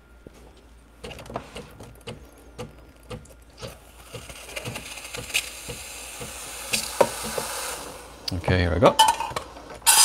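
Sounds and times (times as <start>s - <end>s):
steam wand hissing: 4.9s - 8.2s.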